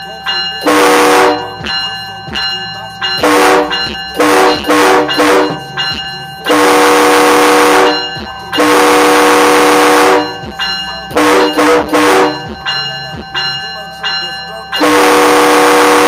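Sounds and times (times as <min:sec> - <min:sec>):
train horn blasts: 0:00.6 - 0:01.5, 0:03.2 - 0:05.6, 0:06.5 - 0:10.4, 0:11.1 - 0:12.5, 0:14.8 - 0:16.0.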